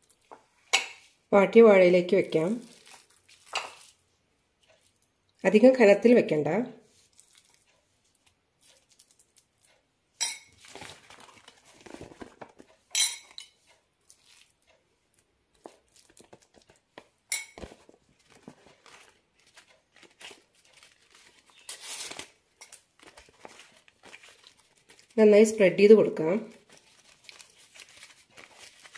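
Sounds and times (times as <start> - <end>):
banana leaf crinkling: 2.6 - 4.0, 6.9 - 9.8, 10.6 - 12.4, 17.6 - 25.2, 26.4 - 28.9
steel spoon clinking and scraping: 10.2 - 10.6, 12.9 - 13.7, 17.3 - 17.6.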